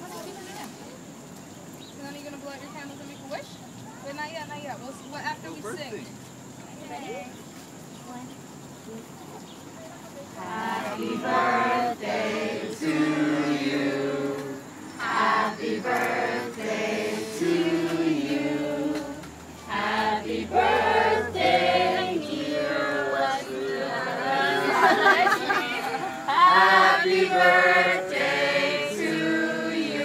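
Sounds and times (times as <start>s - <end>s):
group singing together: 10.4s - 30.0s.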